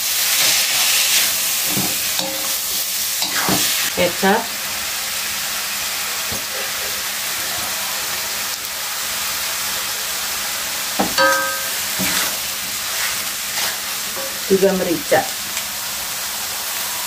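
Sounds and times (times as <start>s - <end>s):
spatula scraping a wok: 0.0s - 3.9s, 11.3s - 14.5s
food sizzling in a wok: 0.0s - 17.0s.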